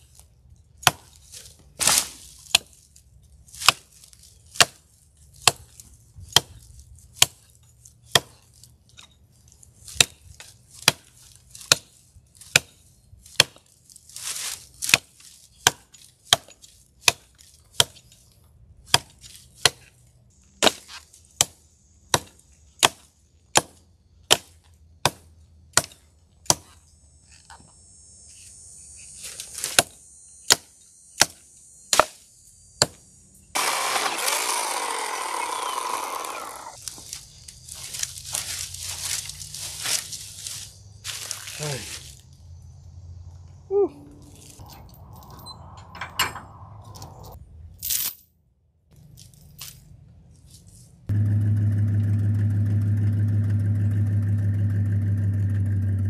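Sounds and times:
hatchet chopping log: 0.8 - 1.2, 1.8 - 2.8, 3.6 - 3.9, 4.5 - 4.8, 5.4 - 6.6, 7.2 - 8.4, 9.9 - 13.7, 14.8 - 18.1, 18.8 - 19.9, 20.6 - 26.8, 29.7 - 32.2, 32.8 - 33.0, 33.6 - 37.0.

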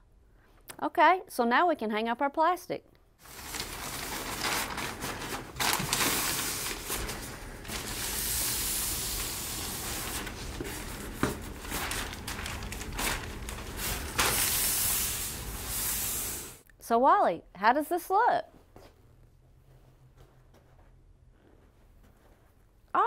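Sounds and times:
plastic sheeting rustling: 3.2 - 16.6.

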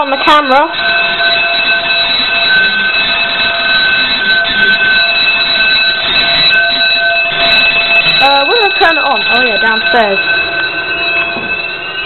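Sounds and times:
electronic alarm sounder: 0.0 - 12.0
fire bell ringing: 0.0 - 12.0.

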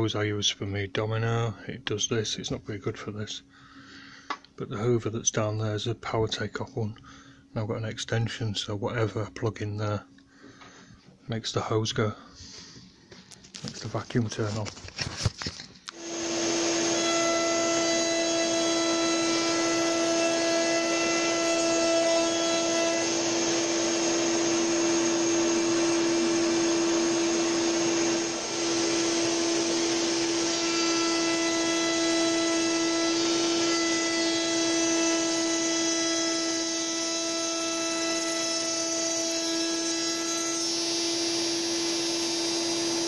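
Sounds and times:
workshop vacuum running: 13.5 - 43.0
router running: 15.2 - 43.0.

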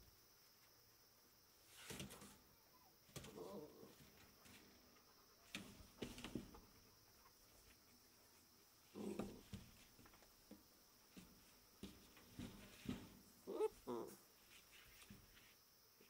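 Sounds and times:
faint taps and scuffs on floor: 9.2 - 13.3
puppy whimpering: 13.5 - 14.2.

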